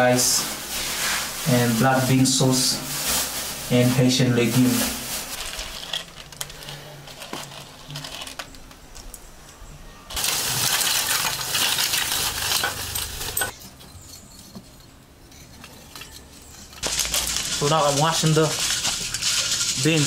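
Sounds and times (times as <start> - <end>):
plastic bag rustling: 0.0 - 9.0, 10.1 - 13.6, 16.0 - 20.0
dry beans clinking in metal bowl: 4.7 - 8.8, 10.1 - 20.0.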